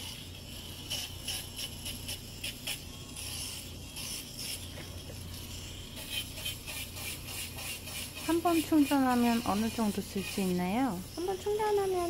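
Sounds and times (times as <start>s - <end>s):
foot file motor hum: 0.0s - 12.0s
sanding pad rasping on skin: 0.0s - 12.0s.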